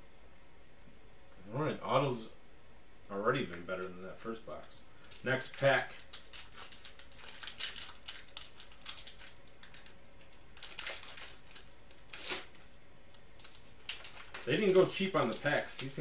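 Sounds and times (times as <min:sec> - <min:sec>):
foil wrapper tearing and crinkling: 0:05.0 - 0:16.0.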